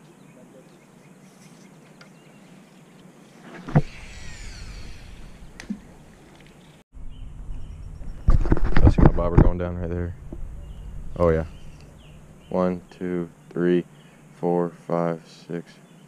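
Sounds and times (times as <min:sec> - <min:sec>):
reel spool whine: 0:03.3 - 0:06.4.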